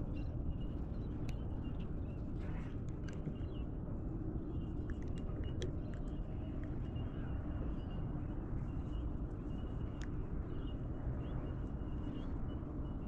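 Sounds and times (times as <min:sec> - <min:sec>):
steady low rumble: 0:00.0 - 0:13.0
small click: 0:10.0 - 0:10.2.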